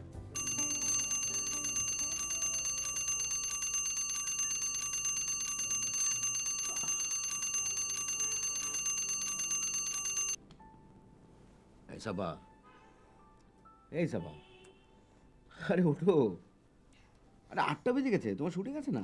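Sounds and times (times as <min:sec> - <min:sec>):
alarm clock bell ringing: 0:00.4 - 0:10.4.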